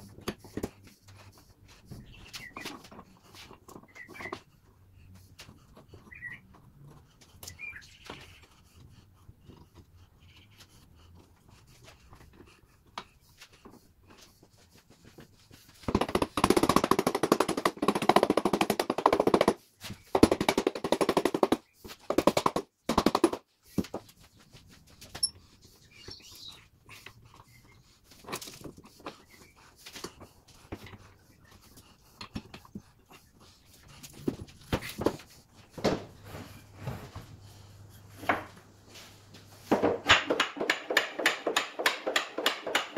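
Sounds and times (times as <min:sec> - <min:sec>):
rubber mallet striking wood blocks: 0:15.9 - 0:23.4, 0:39.7 - 0:42.9.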